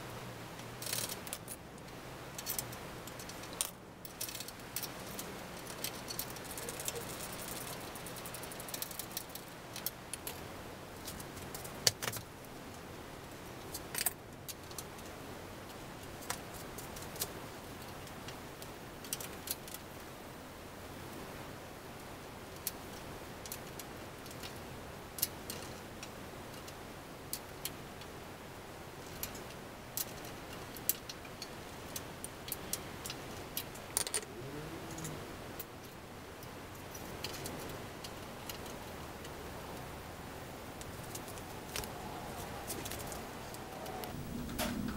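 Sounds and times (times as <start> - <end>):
small metal parts clicking: 0.8 - 10.4, 29.0 - 34.3.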